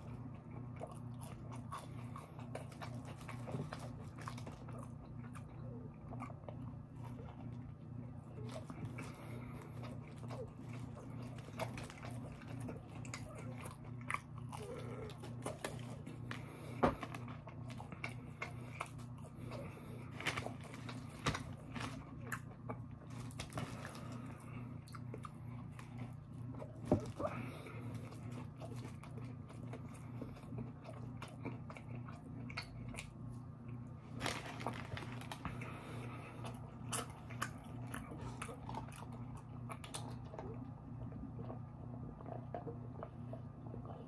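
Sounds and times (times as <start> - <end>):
chewing and crunching food: 0.0 - 44.0
steady low hum: 0.0 - 44.0.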